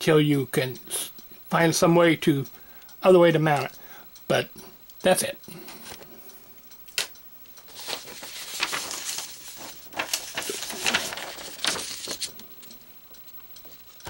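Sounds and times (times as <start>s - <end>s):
rustling and handling noise: 6.9s - 14.0s.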